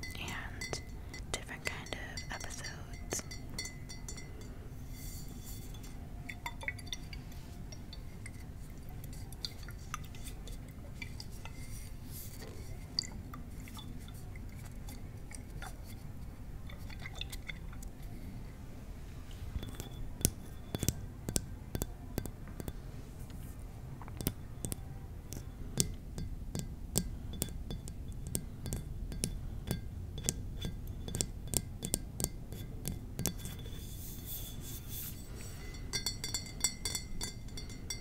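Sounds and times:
tapping on glass bottles: 0:00.0 - 0:08.4, 0:19.6 - 0:22.8, 0:24.1 - 0:34.3, 0:35.2 - 0:38.0.

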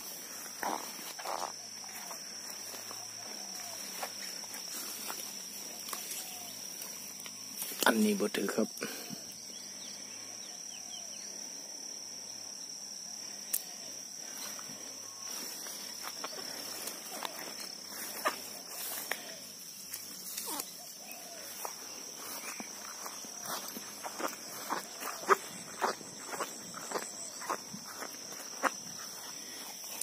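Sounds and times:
footsteps through grass: 0:00.0 - 0:08.2, 0:14.2 - 0:30.0
insects chirring: 0:00.0 - 0:30.0.

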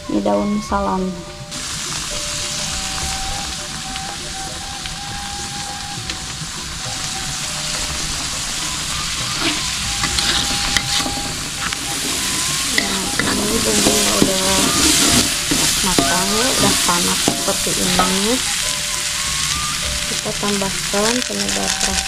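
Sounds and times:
spice paste sizzling in oil: 0:00.4 - 0:22.0
metal spatula scraping pan: 0:09.3 - 0:18.7.

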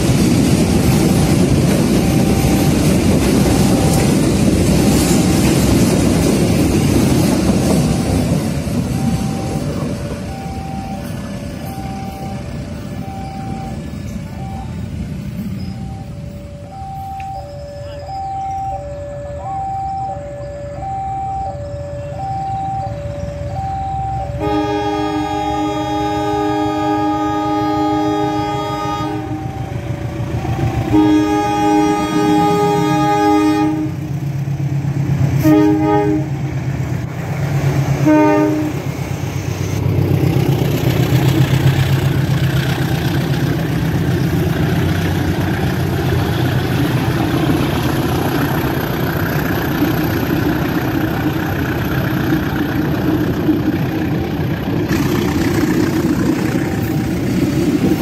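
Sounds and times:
train rumbling past: 0:00.0 - 0:58.0
two-tone crossing warning signal: 0:00.0 - 0:58.0
locomotive horn blasts: 0:24.3 - 0:29.8, 0:30.4 - 0:34.1, 0:35.4 - 0:36.5, 0:38.0 - 0:38.9.

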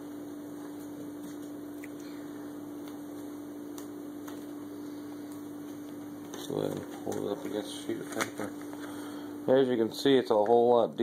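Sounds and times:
electrical hum: 0:00.0 - 0:11.0.

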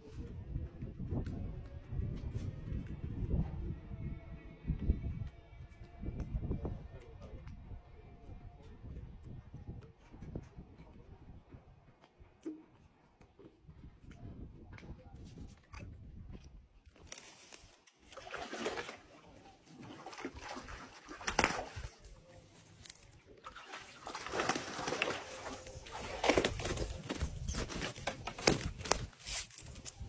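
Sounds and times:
water splashing and sloshing: 0:15.5 - 0:29.7.

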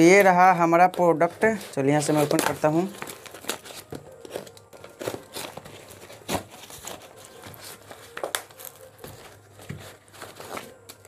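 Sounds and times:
paper bag tearing and crinkling: 0:01.1 - 0:11.0.

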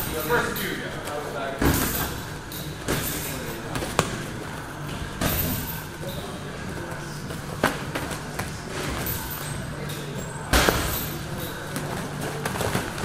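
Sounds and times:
boxing gloves thudding: 0:01.6 - 0:06.0, 0:06.7 - 0:09.7, 0:10.4 - 0:13.0.

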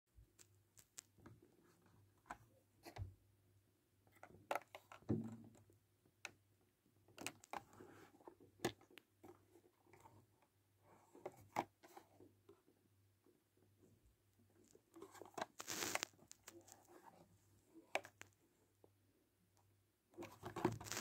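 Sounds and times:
plastic packaging crinkling: 0:15.6 - 0:16.8, 0:20.6 - 0:21.0.

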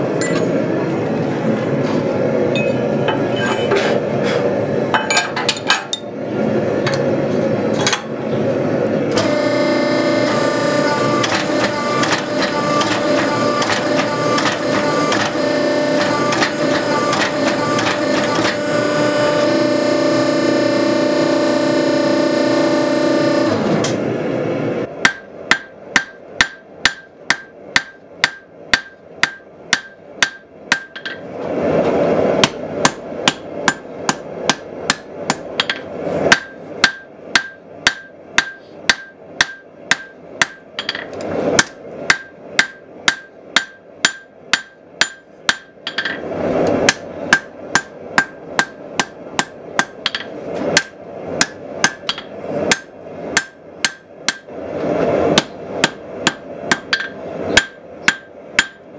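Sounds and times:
hammer striking steel on anvil: 0:25.0 - 0:31.2, 0:32.4 - 0:46.2, 0:46.9 - 0:54.5, 0:55.4 - 0:58.8.

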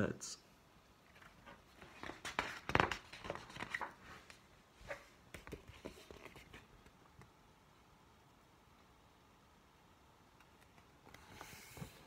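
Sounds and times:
paper pages turning: 0:01.1 - 0:07.0.

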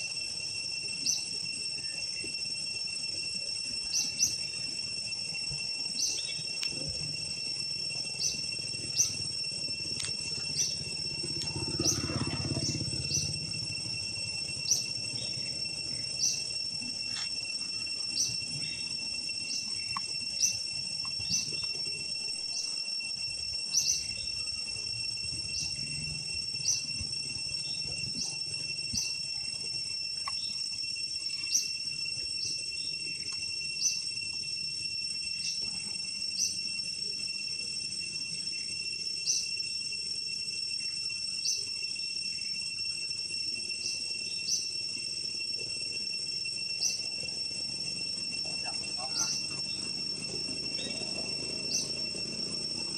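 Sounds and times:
high-pitched insect drone: 0:00.0 - 0:52.9
short sharp insect chirp: 0:00.0 - 0:52.9.

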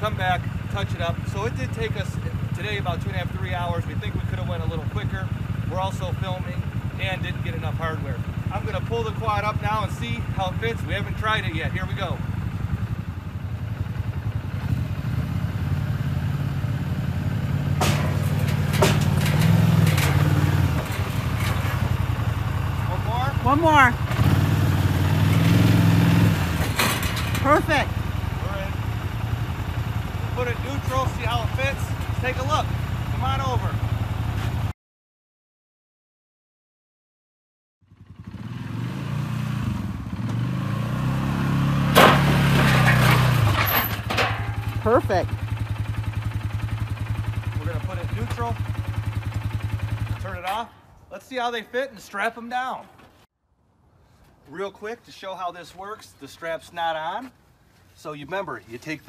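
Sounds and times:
quad bike engine running: 0:00.0 - 0:34.7, 0:37.9 - 0:50.6
sharp knocks and clanks: 0:17.6 - 0:22.4, 0:26.5 - 0:27.7, 0:41.9 - 0:44.8
wheels clattering onto wooden trailer: 0:17.6 - 0:23.2, 0:25.1 - 0:28.0, 0:30.6 - 0:32.5, 0:42.0 - 0:44.9.

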